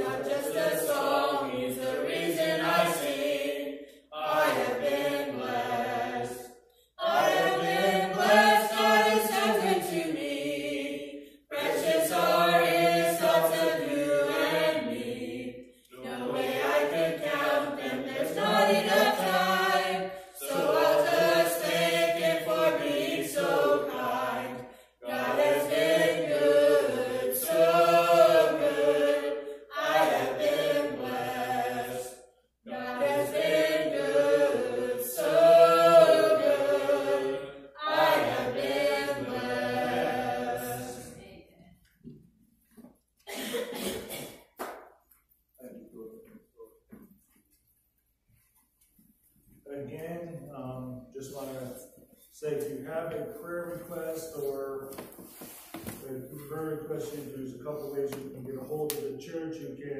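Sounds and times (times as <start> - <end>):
group singing a hymn in harmony: 0.0 - 42.2, 51.1 - 59.1.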